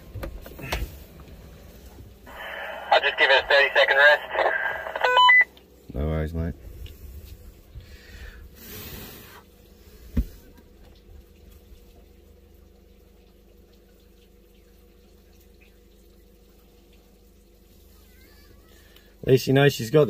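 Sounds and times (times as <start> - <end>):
faint steady hum: 0.0 - 20.0
floodwater sloshing and trickling: 9.3 - 19.2.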